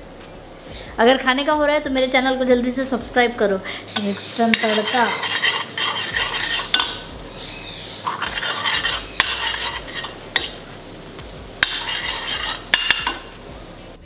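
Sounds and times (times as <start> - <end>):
ladle stirring sizzling food: 3.8 - 14.0
ladle knocking against pan: 4.5 - 7.1, 8.1 - 10.6, 11.6 - 13.3.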